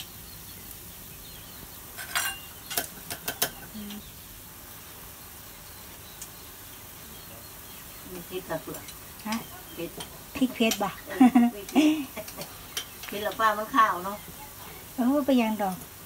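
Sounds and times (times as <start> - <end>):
broth boiling and bubbling: 0.0 - 16.0.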